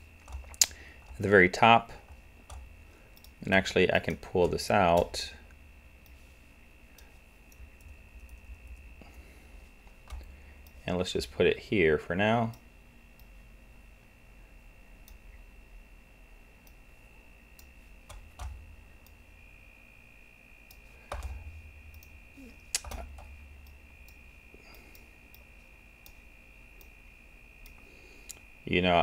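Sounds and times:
faint high whine: 0:00.0 - 0:29.0
computer mouse clicks: 0:02.5 - 0:03.4.

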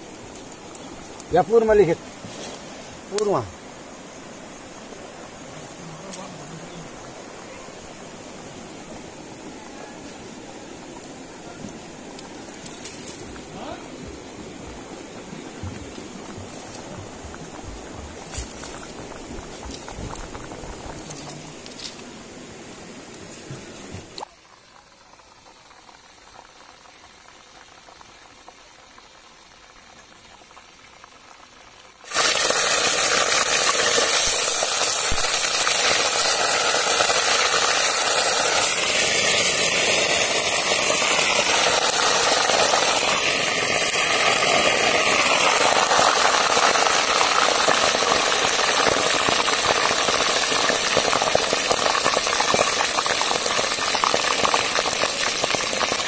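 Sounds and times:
fish deep-frying in hot oil: 0:00.0 - 0:05.4, 0:24.2 - 0:56.0.

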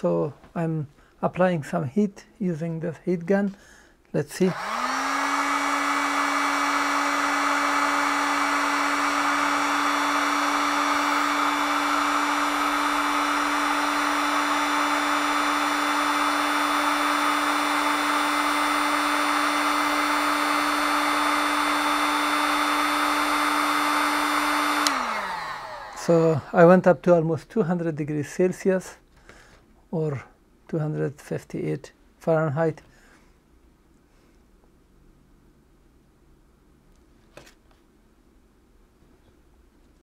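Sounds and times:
heat gun fan humming: 0:04.4 - 0:26.8.

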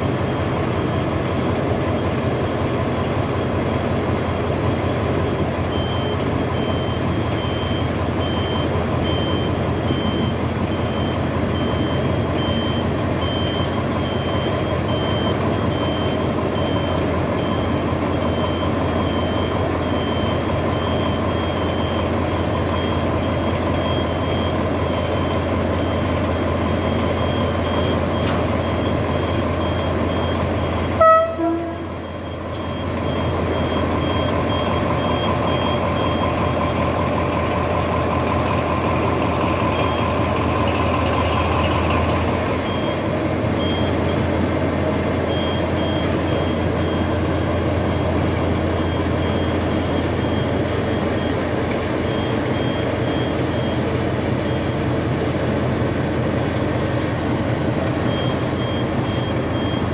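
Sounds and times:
locomotive engine drone: 0:00.0 - 0:59.9
high electronic beep: 0:04.9 - 0:38.4, 0:58.0 - 0:59.9
locomotive horn toot: 0:30.9 - 0:32.2.

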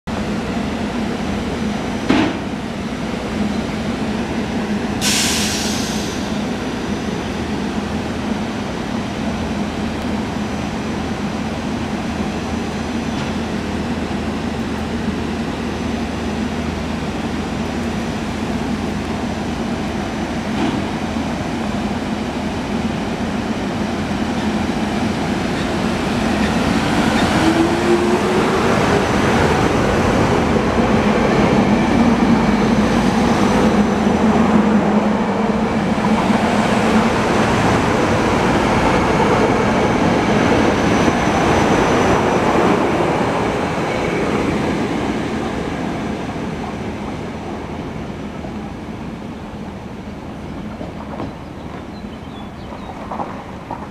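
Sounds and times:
short hiss: 0:05.0 - 0:06.3
electric train humming: 0:06.2 - 0:51.6
train whine rising: 0:24.6 - 0:48.5.

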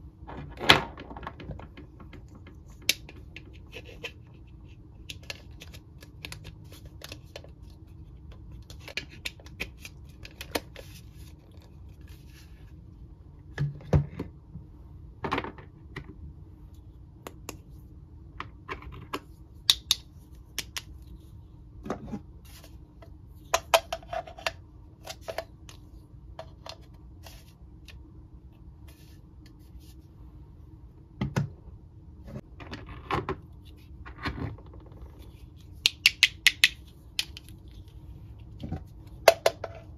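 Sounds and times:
faint steady hum: 0:00.0 - 0:39.9
plastic parts clicking and knocking: 0:00.3 - 0:04.2.

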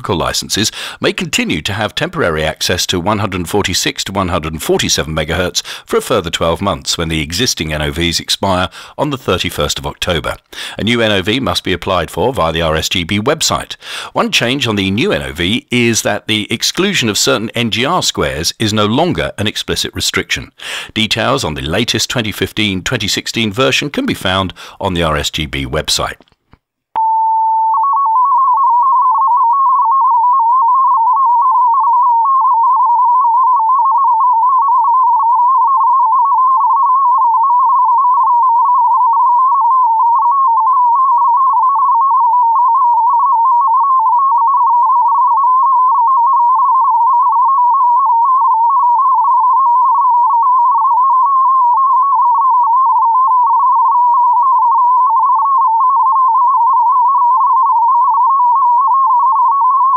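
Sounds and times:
warbling digital data tones: 0:27.6 - 0:59.9.

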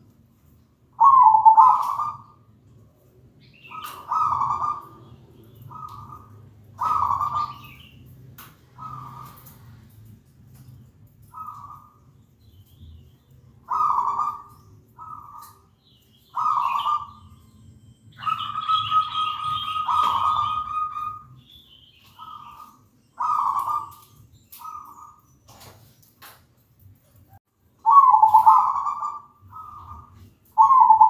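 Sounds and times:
dove cooing: 0:01.0 - 0:02.4, 0:03.6 - 0:05.0, 0:05.6 - 0:07.8, 0:08.7 - 0:09.6, 0:11.3 - 0:12.0, 0:13.6 - 0:15.6, 0:16.3 - 0:17.2, 0:18.2 - 0:21.3, 0:22.2 - 0:25.2, 0:27.8 - 0:31.0.

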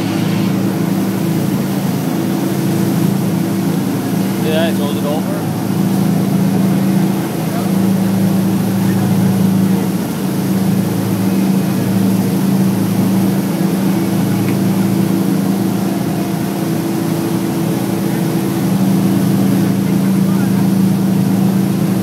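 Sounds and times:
boat engine humming: 0:00.0 - 0:22.0
rush of boat wake: 0:00.0 - 0:22.0.

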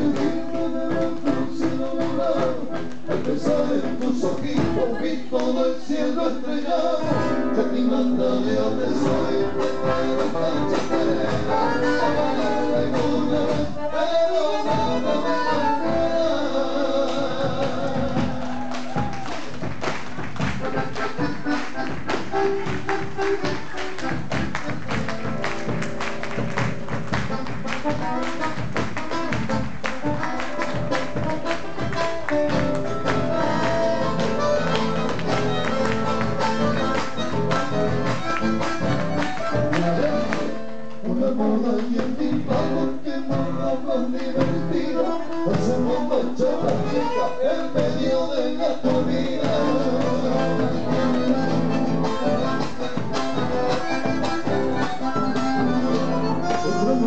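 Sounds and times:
bandoneon and acoustic guitars: 0:00.0 - 0:19.1, 0:20.4 - 0:57.0
sharp percussive beat: 0:17.0 - 0:40.5, 0:47.8 - 0:57.0.

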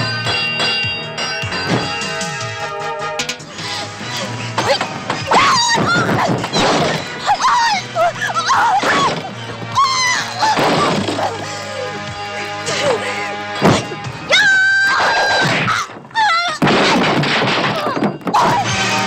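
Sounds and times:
dramatic music: 0:00.0 - 0:19.0
punch and crash impacts: 0:13.6 - 0:14.0, 0:16.6 - 0:18.5.

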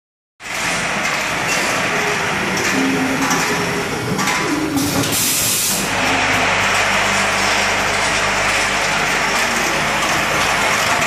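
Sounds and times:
loud hiss: 0:05.0 - 0:06.0.

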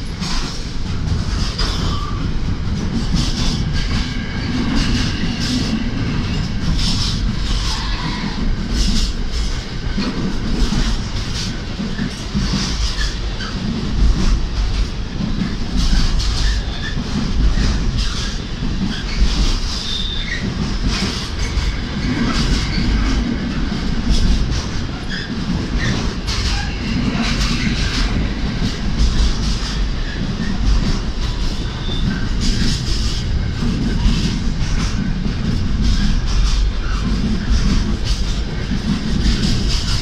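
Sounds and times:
freight train rumble: 0:00.0 - 0:40.0
wheels clacking over rail joints: 0:00.0 - 0:40.0
high wheel squeals: 0:18.0 - 0:20.5, 0:31.6 - 0:32.3.

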